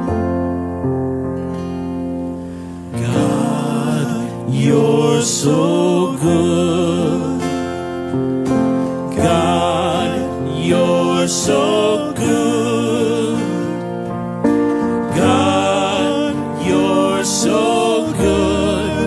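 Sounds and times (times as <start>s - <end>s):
keyboard chords: 0.0s - 19.0s
strummed acoustic guitar: 0.0s - 19.0s
man singing: 3.0s - 7.9s, 9.2s - 13.9s, 15.1s - 19.0s.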